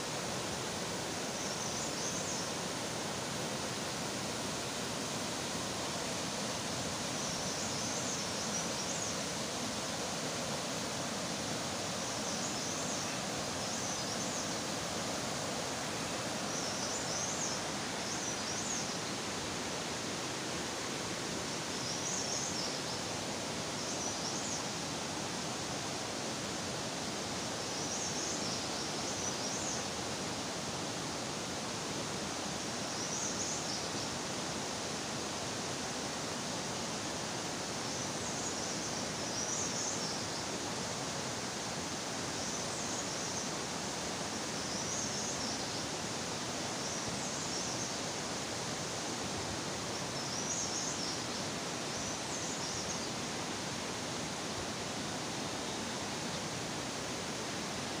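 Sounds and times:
stream running over rocks: 0.0s - 58.0s.

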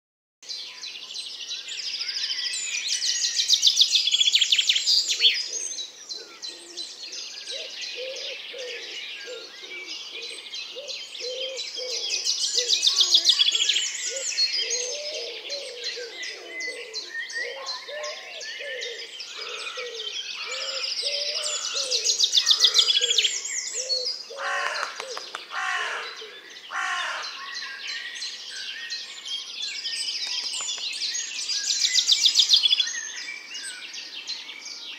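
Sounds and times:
wren trilling song: 0.6s - 34.9s
wood pigeon cooing: 5.5s - 6.8s, 7.5s - 13.4s, 14.1s - 26.0s.

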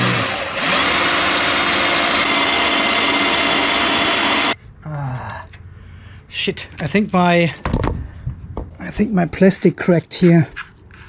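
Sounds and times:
cordless drill drilling plastic: 0.0s - 4.6s.

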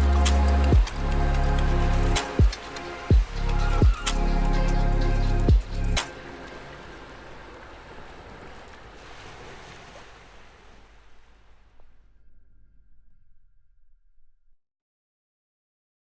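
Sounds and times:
background music: 0.0s - 7.7s.

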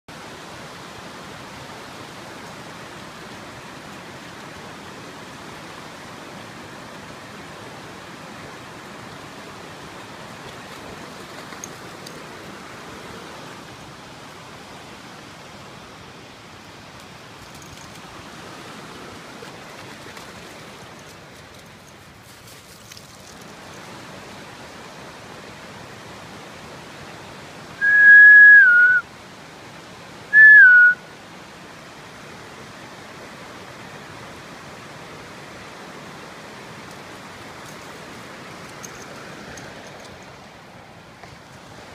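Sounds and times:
creek water rushing: 0.1s - 41.9s
loud whistle: 27.8s - 29.0s, 30.3s - 31.0s.

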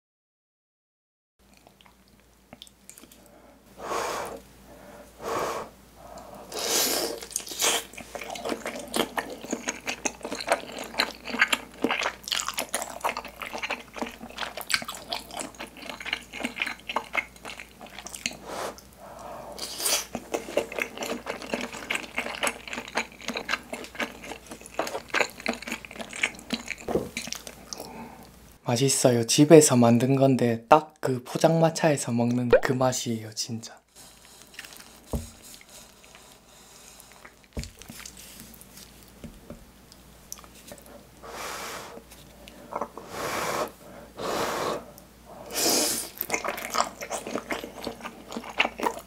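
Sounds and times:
wet chewing and biting: 7.2s - 18.9s, 19.6s - 27.8s, 34.1s - 40.9s, 46.0s - 49.0s.

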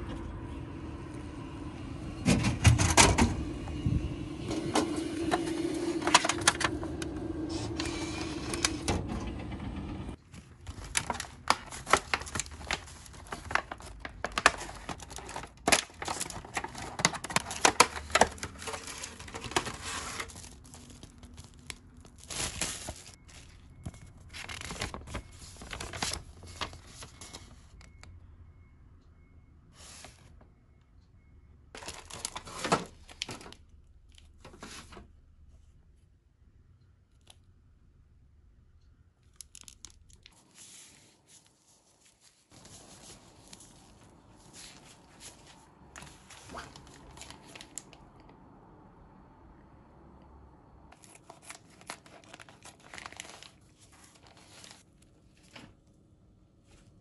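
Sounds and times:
plastic packaging crinkling: 10.2s - 27.7s, 31.8s - 34.3s, 39.2s - 48.0s, 51.0s - 55.7s.

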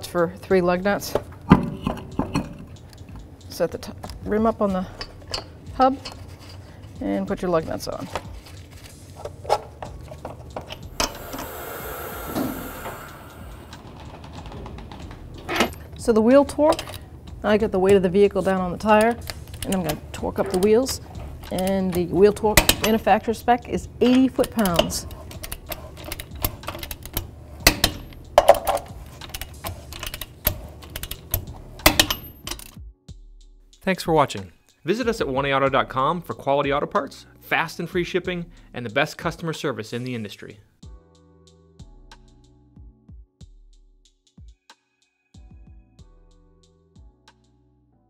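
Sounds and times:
car lift hissing: 11.0s - 14.0s.

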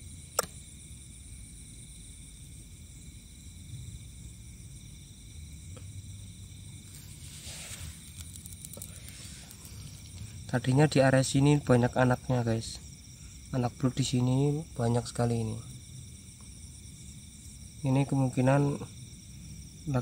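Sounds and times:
night insects trilling: 0.0s - 20.0s
sharp click: 0.4s - 0.6s.

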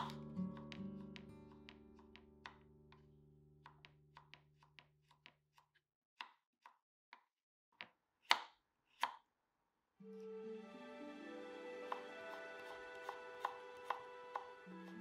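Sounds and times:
faint background music: 10.0s - 15.0s
knife cutting on wooden board: 11.9s - 15.0s.

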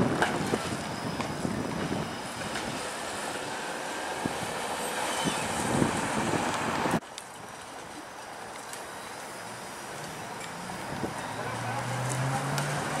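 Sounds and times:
streetcar rolling rumble: 0.0s - 13.0s
car passing by: 9.5s - 13.0s.

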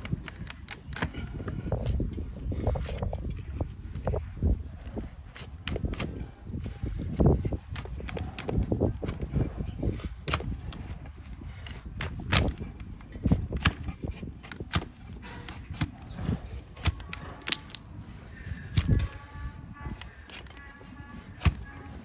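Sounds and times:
blade cutting hoof: 5.1s - 22.0s.

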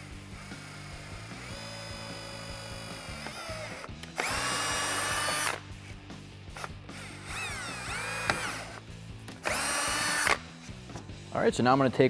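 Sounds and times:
cordless drill whining: 0.0s - 5.6s, 6.6s - 8.8s, 9.4s - 10.4s.

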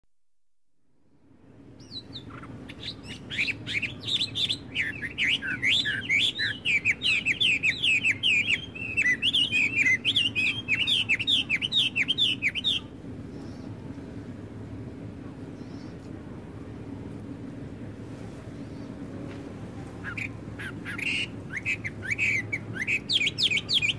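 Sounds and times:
steady low rumble: 0.8s - 23.9s
blackbirds chirping: 1.8s - 13.8s, 20.0s - 23.9s.

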